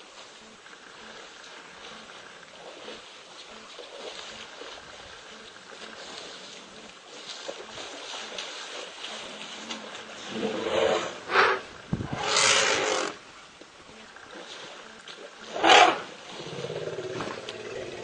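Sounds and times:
elephants roaring calls: 9.4 - 13.2, 15.4 - 18.0.

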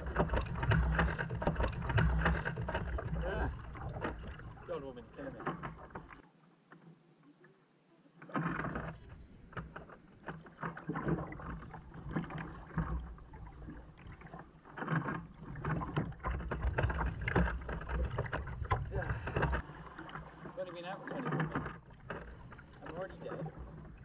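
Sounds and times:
water slapping against hull: 0.0 - 6.8, 8.2 - 24.0
paddle strokes splashing: 0.0 - 7.0, 8.1 - 24.0
wind rumbling on microphone: 15.3 - 19.6.

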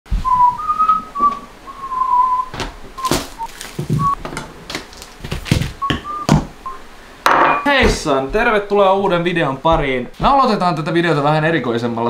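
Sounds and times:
person whistling a tune: 0.2 - 4.2, 5.8 - 6.8.

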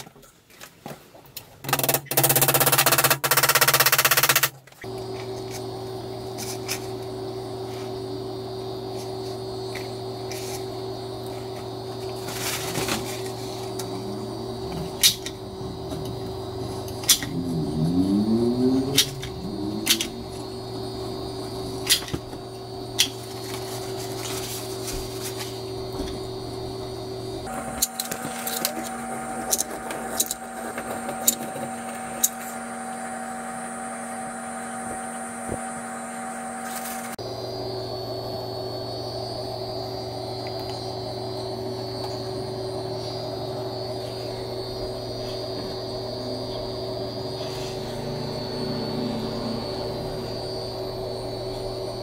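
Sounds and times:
steady low hum: 1.6 - 52.0.

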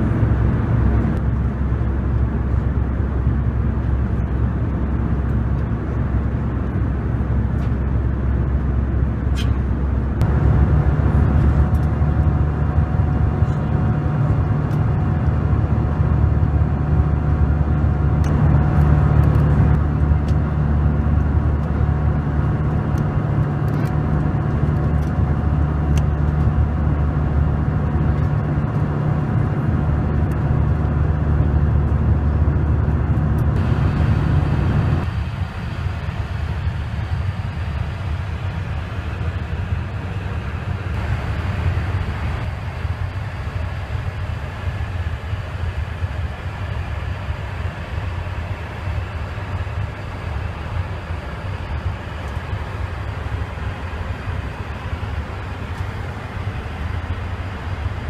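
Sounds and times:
aircraft cabin engine roar: 0.0 - 58.0.

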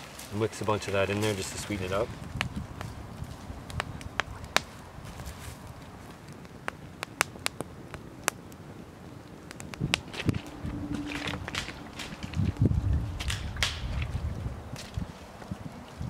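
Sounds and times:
campfire crackling and popping: 0.0 - 15.6
dull low thumps: 9.8 - 15.0.

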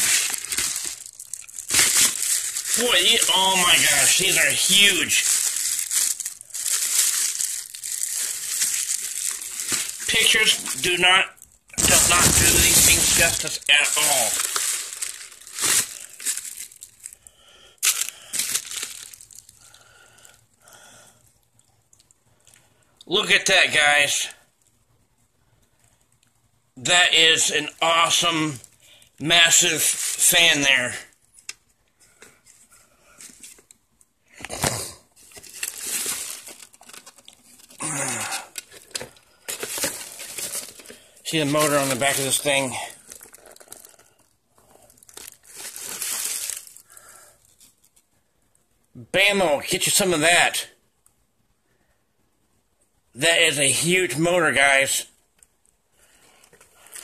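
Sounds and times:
packaging tearing: 0.0 - 11.0, 11.8 - 17.2, 17.8 - 19.8, 29.5 - 30.6, 34.4 - 44.2, 44.8 - 47.8
plastic wrapping crinkling: 0.0 - 20.4, 27.4 - 48.2, 55.4 - 57.0
cardboard box rustling: 5.2 - 10.8, 11.8 - 16.7, 35.2 - 37.8, 38.6 - 42.2.

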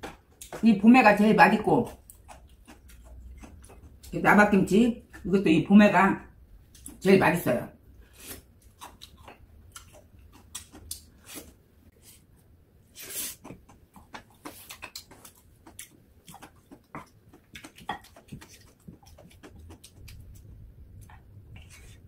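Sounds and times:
chewing and lip smacking: 1.9 - 4.2, 8.6 - 11.2, 13.3 - 21.7
wooden spoon scraping stone pot: 21.5 - 22.0.

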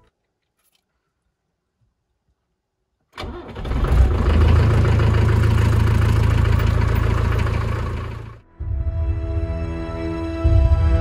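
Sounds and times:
car engine starting and idling: 3.2 - 8.4.

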